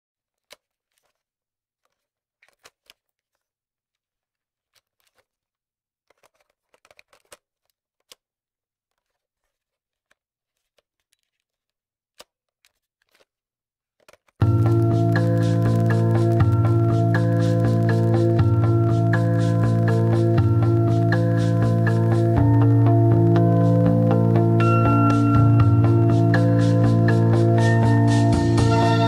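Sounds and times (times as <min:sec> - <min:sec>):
computer mouse and keyboard clicks: 0:00.3 - 0:08.3, 0:14.0 - 0:22.5
vaporwave backing music: 0:14.4 - 0:29.0.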